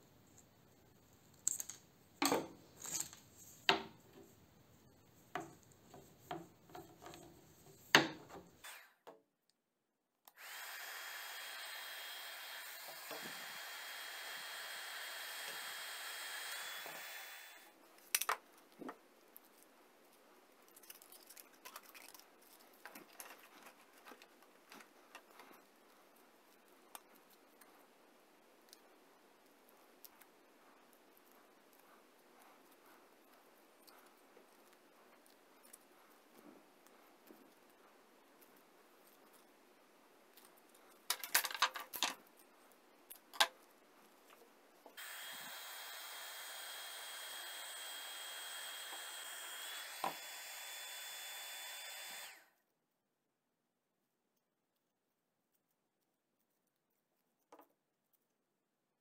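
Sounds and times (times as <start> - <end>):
heat gun blowing: 10.3 - 17.8, 45.0 - 52.5
cordless drill whine: 10.4 - 17.7, 45.0 - 52.5
plastic band clicks and rustles: 18.0 - 19.6, 40.3 - 44.4.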